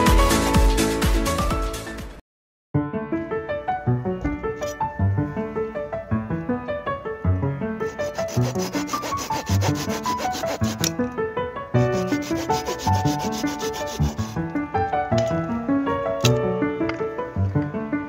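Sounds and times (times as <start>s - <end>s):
background music: 0.0s - 2.2s, 2.8s - 18.0s
knife sawing a dry stick: 7.9s - 10.9s, 11.8s - 14.4s.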